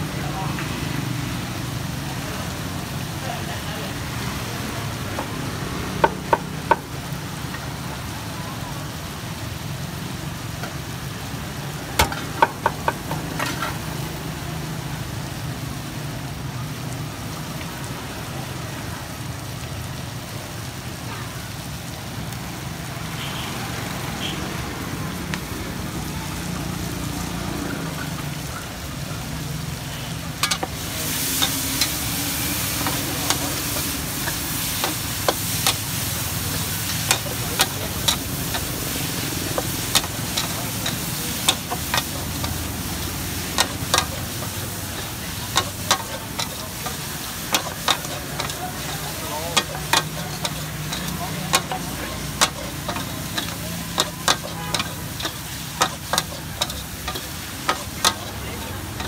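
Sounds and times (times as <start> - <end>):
meat sizzling in a wok: 0.0 - 59.0
metal ladle scraping a wok: 13.3 - 13.9, 43.5 - 59.0.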